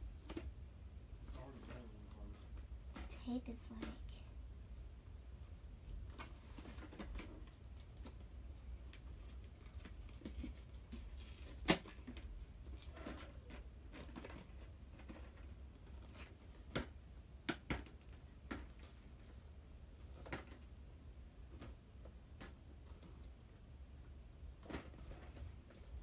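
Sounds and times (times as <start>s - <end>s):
tape and packaging crinkling: 5.8s - 16.2s.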